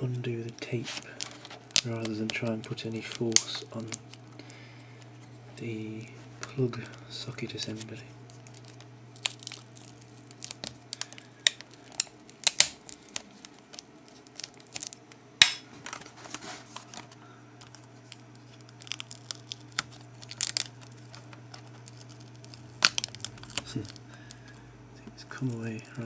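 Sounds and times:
adhesive tape peeling and tearing: 8.3 - 15.0, 17.7 - 24.0.

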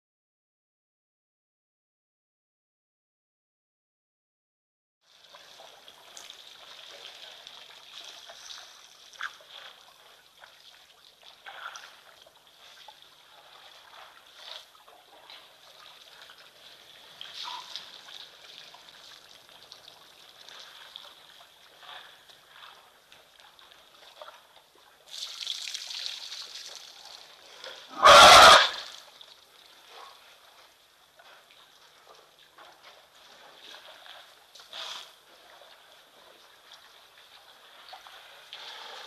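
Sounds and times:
water trickling and splashing: 5.0 - 27.9, 28.8 - 39.0.

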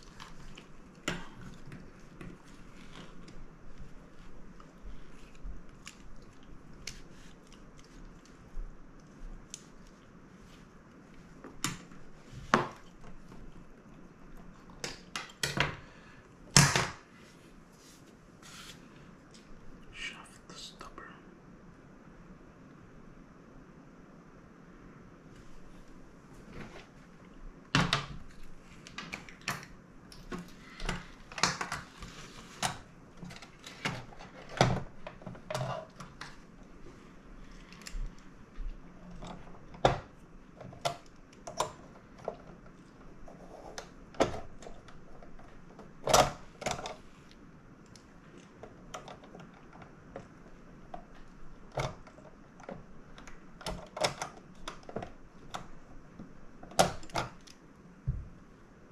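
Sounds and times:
plastic parts clicking and knocking: 43.8 - 47.0.

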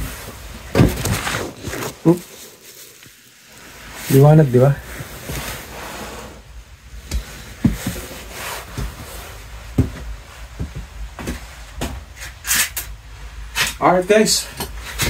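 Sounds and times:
nylon jacket rustling: 0.0 - 11.8
low steady hum: 0.0 - 15.0
light knocks and thumps: 7.0 - 8.1, 9.7 - 12.0.

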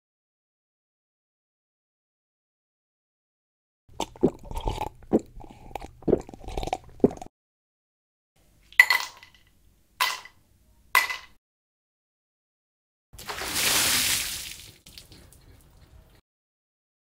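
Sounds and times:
person gulping water: 3.9 - 7.3
ice cubes clinking into glass: 8.8 - 10.4.

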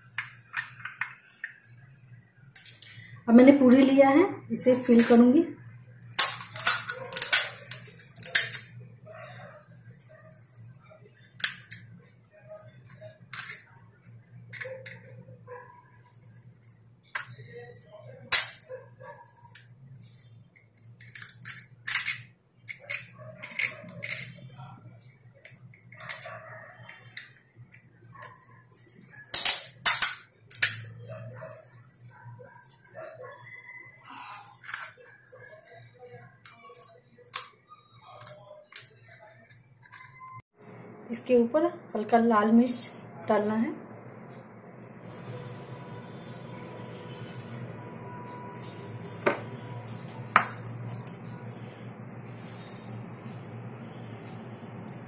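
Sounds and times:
crisp shells cracking: 6.0 - 8.7, 52.2 - 53.8
spoon and filling sounds: 48.5 - 54.4
small clicks and crackles: 49.8 - 55.0.

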